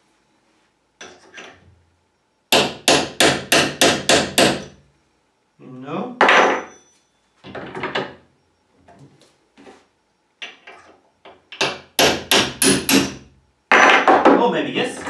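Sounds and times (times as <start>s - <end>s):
hammer striking steel punch: 2.5s - 4.8s, 11.6s - 13.2s.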